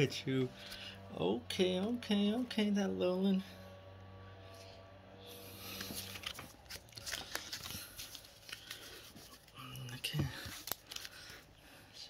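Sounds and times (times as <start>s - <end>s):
cards and foil pack crinkling: 5.5s - 11.8s.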